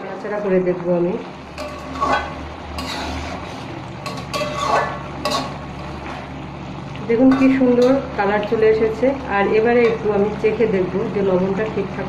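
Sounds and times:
steady low hum: 0.0s - 12.0s
metal spatula scraping a pan: 1.5s - 5.6s.

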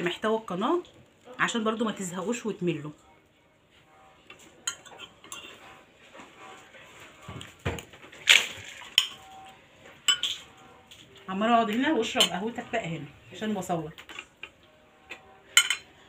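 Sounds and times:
cutlery clinking on ceramic plate: 4.6s - 5.7s, 10.0s - 10.5s, 14.0s - 16.0s.

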